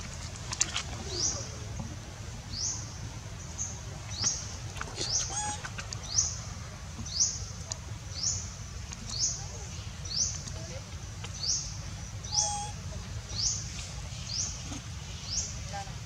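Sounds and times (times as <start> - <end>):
bird chirping: 12.2 - 12.8.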